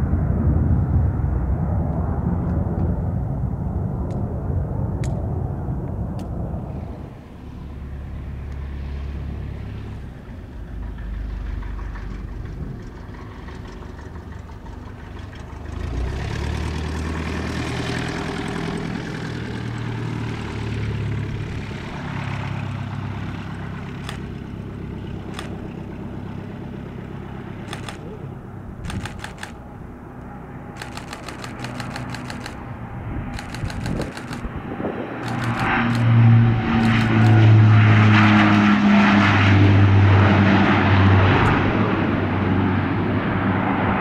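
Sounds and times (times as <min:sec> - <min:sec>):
turboprop plane landing: 0:00.0 - 0:44.0
sharp clicks: 0:24.0 - 0:24.3, 0:25.3 - 0:25.7, 0:27.6 - 0:28.2, 0:28.8 - 0:29.6, 0:30.2 - 0:32.6, 0:33.3 - 0:34.6, 0:35.2 - 0:36.1, 0:36.8 - 0:37.4.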